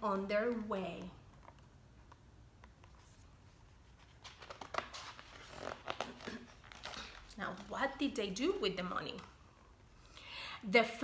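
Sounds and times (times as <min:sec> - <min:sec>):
book pages turning: 0:00.4 - 0:08.4.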